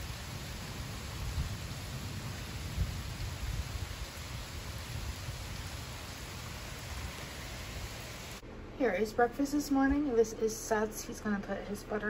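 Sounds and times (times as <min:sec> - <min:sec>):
heavy rain pouring: 0:00.0 - 0:08.4
low storm rumble: 0:00.0 - 0:09.2.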